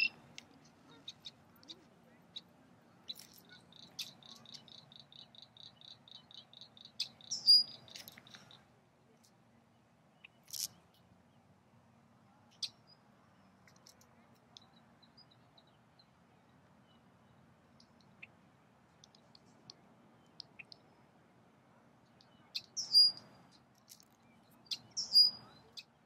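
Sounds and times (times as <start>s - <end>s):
blackbird calling: 0.0s - 2.5s, 3.1s - 8.6s, 24.7s - 26.0s.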